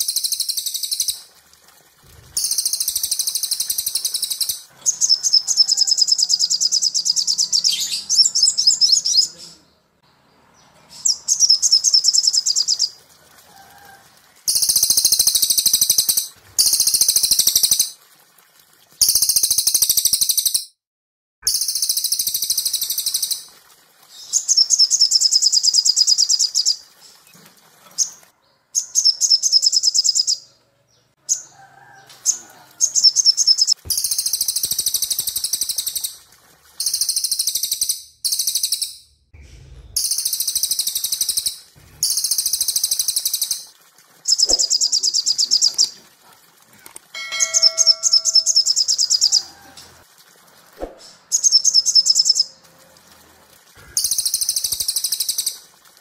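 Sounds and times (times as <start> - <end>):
bird chirping trills: 47.2 - 49.5.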